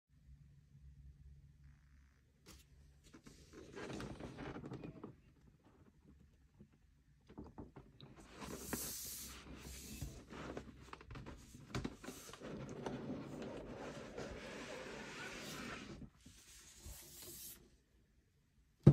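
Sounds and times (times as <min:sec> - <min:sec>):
cardboard box scraping on mat: 0:12.1 - 0:16.0.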